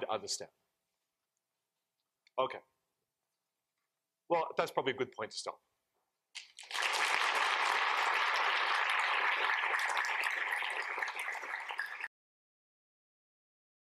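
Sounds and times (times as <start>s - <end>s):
audience applauding: 6.4s - 12.1s.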